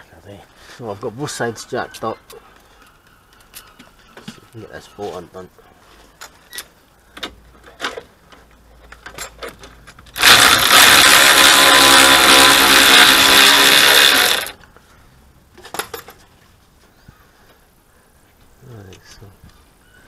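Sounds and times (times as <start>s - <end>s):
impact wrench hammering: 10.2s - 14.5s.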